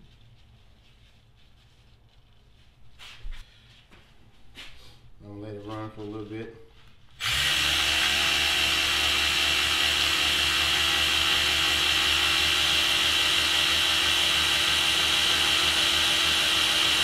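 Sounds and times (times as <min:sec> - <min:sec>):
cordless electric ratchet whining: 0:07.2 - 0:17.0.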